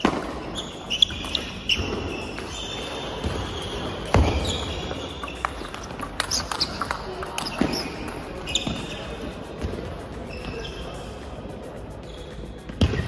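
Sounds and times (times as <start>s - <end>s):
table tennis balls clicking: 0.0s - 10.6s.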